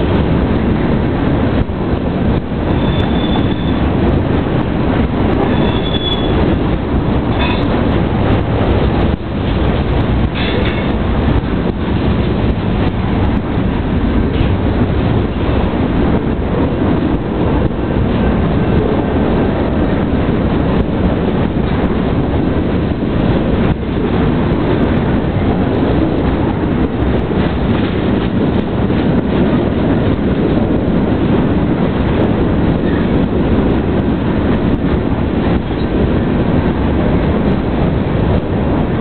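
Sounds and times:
train wheels rumbling on rails: 0.0s - 39.0s
sharp wheel clack: 7.3s - 7.8s.

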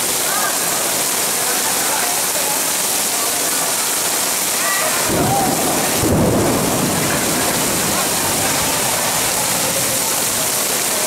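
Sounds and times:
heavy rain pouring: 0.0s - 11.0s.

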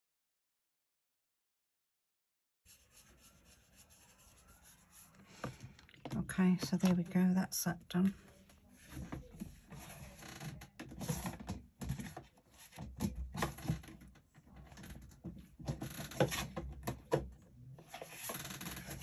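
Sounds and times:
paper rustling and scraping: 17.8s - 19.0s.

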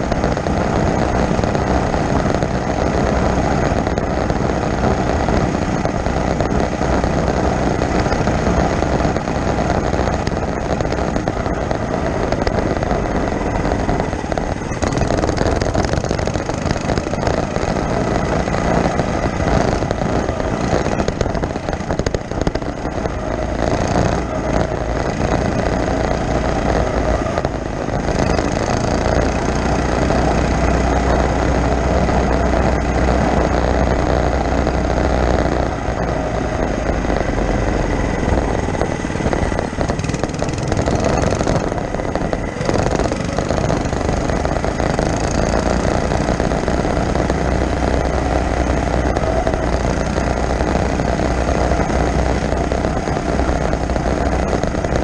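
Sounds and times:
small engine running: 0.0s - 55.0s
wind on microphone: 0.0s - 55.0s.

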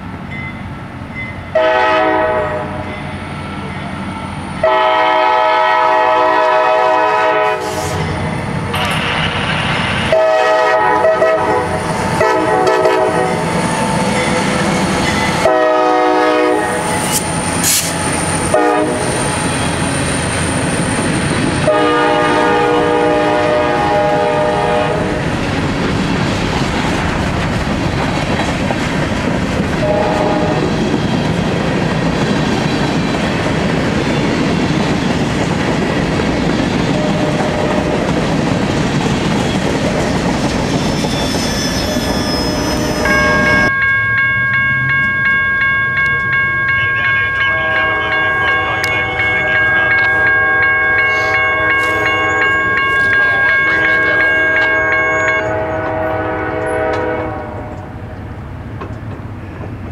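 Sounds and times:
freight train wheels rumbling: 0.0s - 59.9s
locomotive horn: 1.5s - 2.9s, 4.6s - 8.1s, 10.1s - 13.5s, 15.4s - 17.9s, 18.5s - 19.3s, 21.6s - 25.2s, 29.8s - 30.8s, 37.0s - 38.0s, 47.4s - 58.0s.

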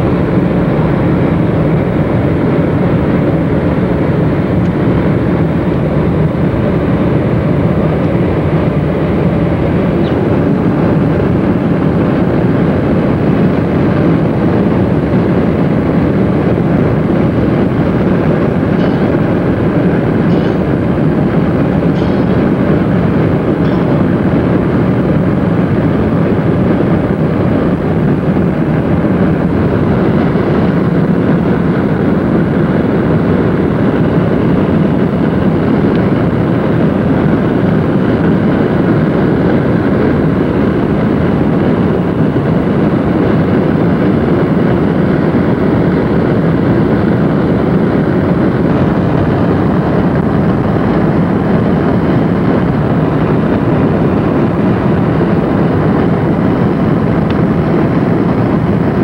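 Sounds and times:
car road and wind noise: 0.0s - 59.0s.

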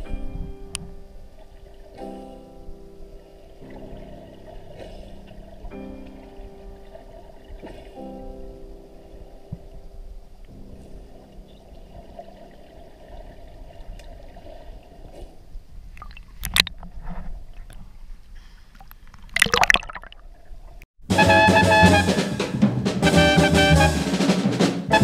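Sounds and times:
muffled underwater water sound: 0.0s - 20.8s
water splashing and gurgling: 1.2s - 10.1s, 10.7s - 17.0s, 18.8s - 20.8s.

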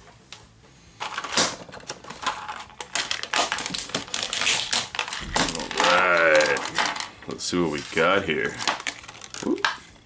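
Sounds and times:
plastic blister pack crackling: 1.0s - 10.0s.

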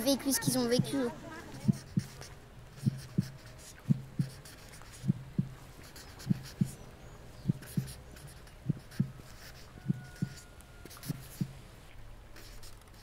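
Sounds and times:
slow heartbeat thuds: 1.6s - 11.6s.

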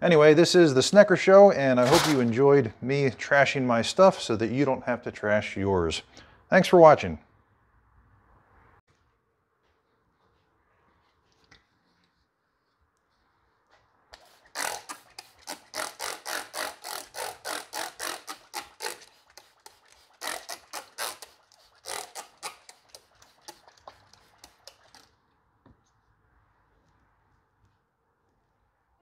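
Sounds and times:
spray bottle spritzing: 14.2s - 25.1s.

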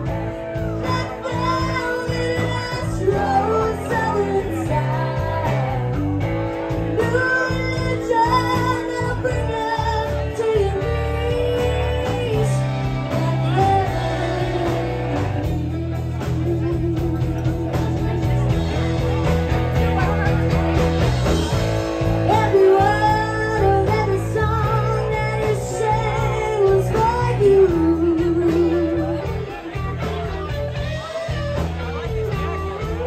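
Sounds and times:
person singing: 0.0s - 18.2s, 22.2s - 30.2s
live band playing blues rock: 0.0s - 33.0s.

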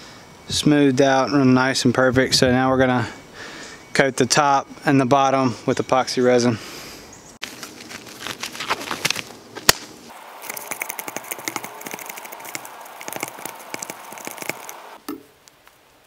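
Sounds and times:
stick scraping a plastic cup: 10.4s - 14.9s.

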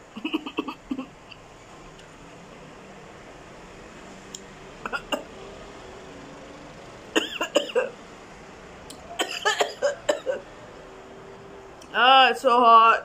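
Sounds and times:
woman coughing: 0.2s - 1.1s, 4.9s - 5.2s, 7.2s - 7.9s, 9.2s - 10.4s.

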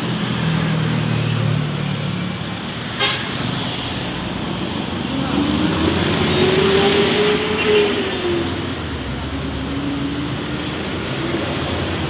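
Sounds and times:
highway traffic passing: 0.0s - 12.0s.

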